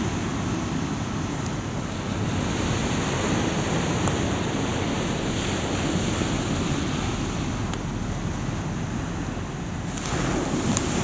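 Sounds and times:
sea surf rushing: 0.0s - 11.0s
wind buffeting microphone: 0.0s - 11.0s
campfire pops: 9.9s - 11.0s.

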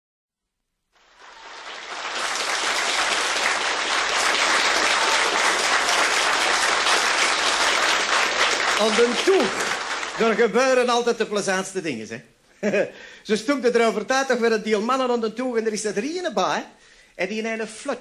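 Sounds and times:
audience applauding: 1.0s - 10.8s.

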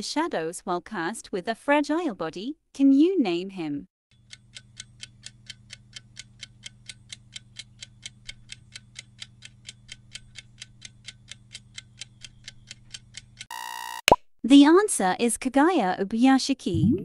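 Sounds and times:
clock ticking: 4.3s - 13.5s.

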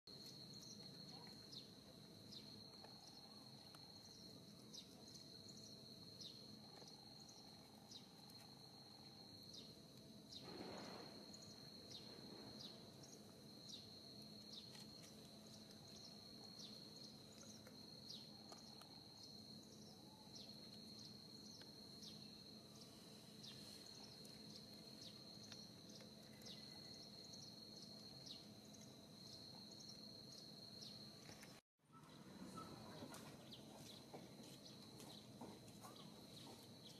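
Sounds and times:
high insect drone: 0.1s - 31.6s.

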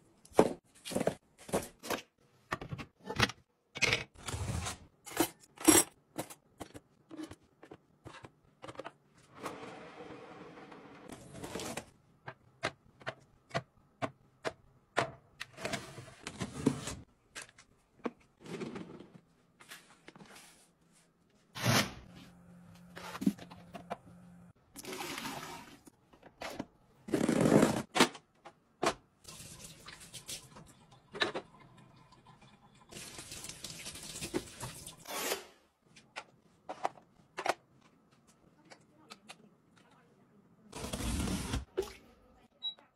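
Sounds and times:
liquid pouring into plastic bin: 24.8s - 25.8s.

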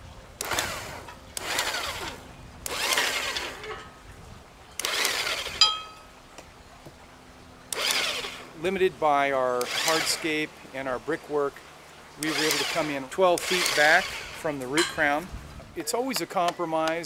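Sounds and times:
electric drill boring into wood: 0.4s - 3.7s, 4.8s - 5.6s, 7.7s - 8.4s, 9.6s - 10.3s, 12.2s - 14.5s.

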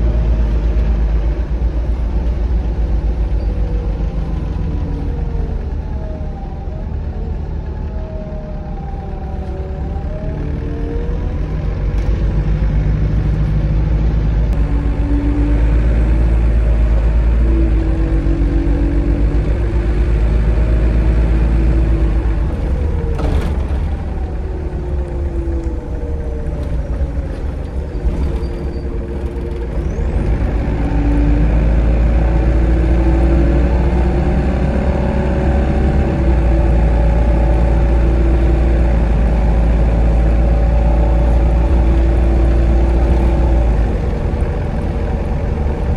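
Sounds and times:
bus engine droning: 0.0s - 45.9s.

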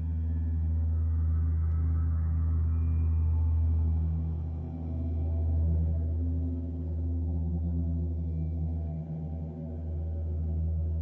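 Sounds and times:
didgeridoo drone: 0.0s - 11.0s.

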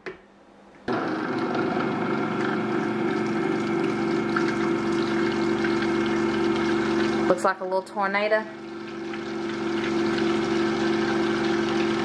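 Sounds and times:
blender running: 0.9s - 7.5s, 8.2s - 12.0s.

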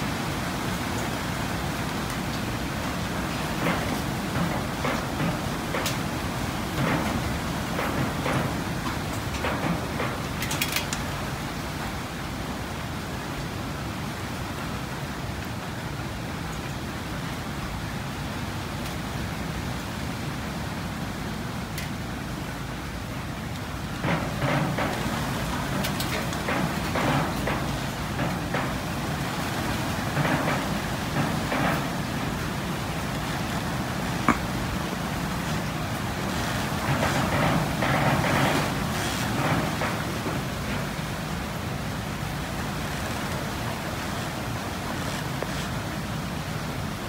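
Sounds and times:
steady background hiss: 0.0s - 47.0s.

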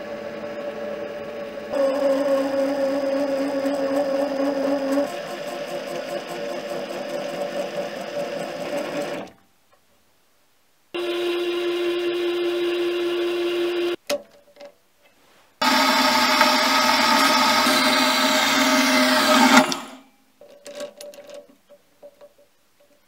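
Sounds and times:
lathe running: 0.0s - 9.4s, 11.0s - 14.0s, 15.6s - 20.0s
metal-cutting bandsaw: 0.0s - 9.4s, 15.6s - 20.0s.

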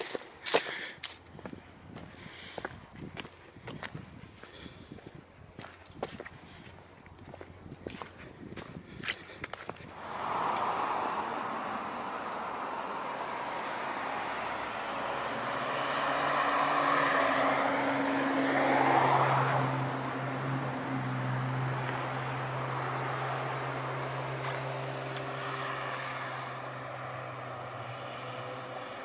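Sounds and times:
truck driving past: 10.0s - 29.0s.

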